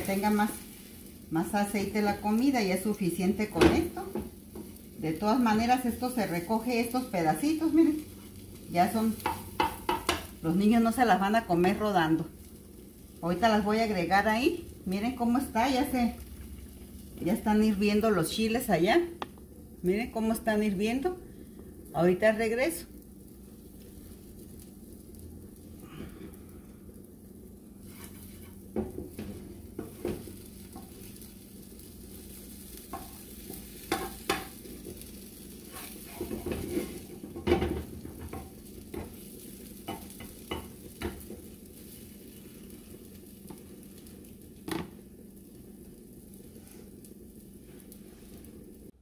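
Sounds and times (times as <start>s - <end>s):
food sizzling: 0.0s - 49.0s
spatula scraping frying pan: 27.8s - 42.9s.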